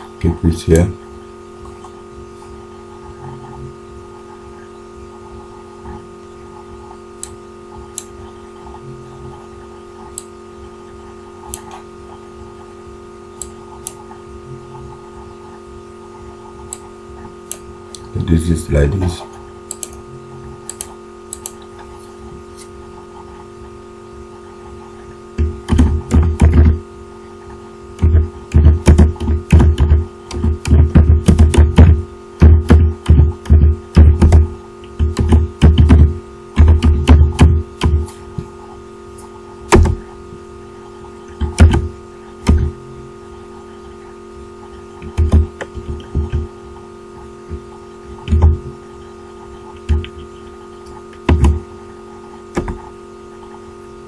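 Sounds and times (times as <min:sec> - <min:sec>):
steady hum: 0:00.0 - 0:54.0
keyboard typing: 0:25.6 - 0:26.8, 0:28.0 - 0:38.8, 0:44.6 - 0:46.5, 0:49.5 - 0:51.6.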